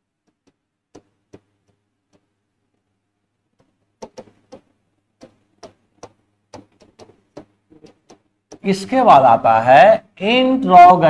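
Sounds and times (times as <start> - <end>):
chalk tapping and scraping on chalkboard: 0.2 - 2.3, 3.6 - 8.8.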